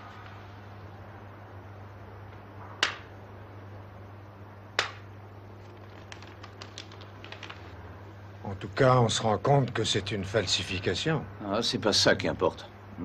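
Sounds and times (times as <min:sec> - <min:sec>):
paper crinkling: 0:05.5 - 0:07.8.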